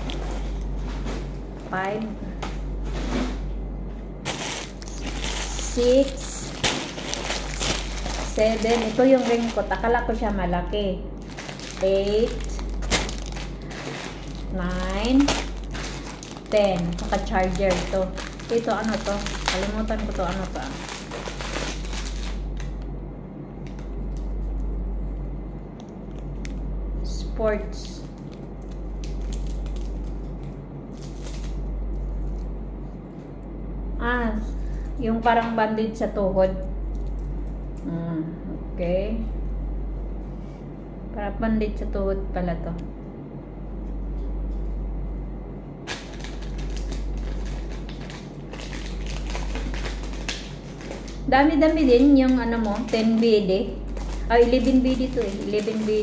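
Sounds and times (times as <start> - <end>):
low room rumble: 0.0 - 56.0
packaging crinkling and rustling: 4.2 - 10.5, 11.2 - 22.9, 27.8 - 32.5, 36.9 - 37.6, 45.9 - 56.0.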